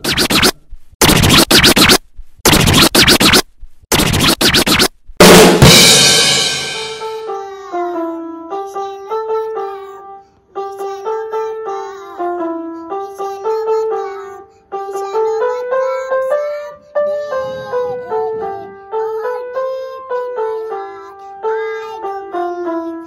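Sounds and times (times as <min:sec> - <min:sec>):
scratch-like percussion hits: 0:00.0 - 0:07.3, 0:17.3 - 0:18.8
cymbal crash ringing: 0:05.2 - 0:07.2.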